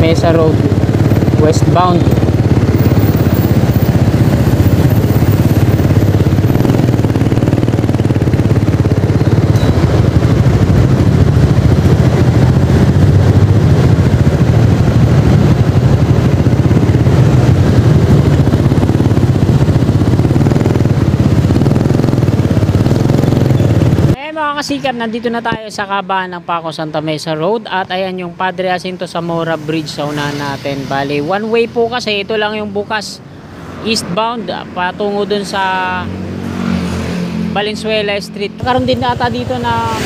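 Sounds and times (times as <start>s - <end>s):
scooter engine low rumble: 0.0s - 24.2s.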